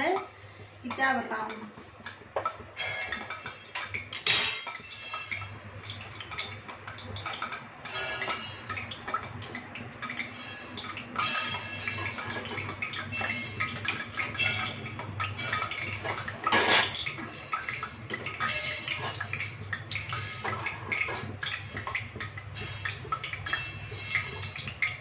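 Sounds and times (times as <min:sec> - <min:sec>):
steel kitchenware clinking: 0:02.8 - 0:04.9, 0:15.4 - 0:17.1.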